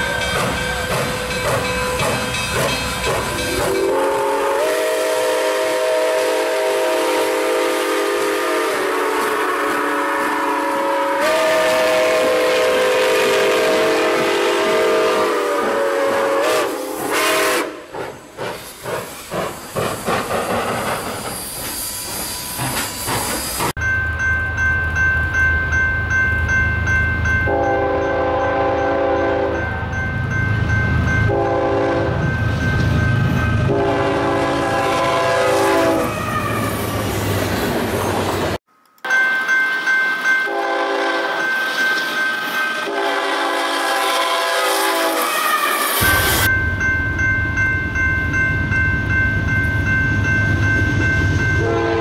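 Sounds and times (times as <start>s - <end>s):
steam locomotive chime whistle: 0.0s - 18.3s, 21.1s - 37.0s, 39.0s - 52.0s
steam locomotive chuffing: 0.0s - 23.8s, 40.5s - 46.9s
steam hiss: 15.3s - 23.8s, 43.8s - 46.5s.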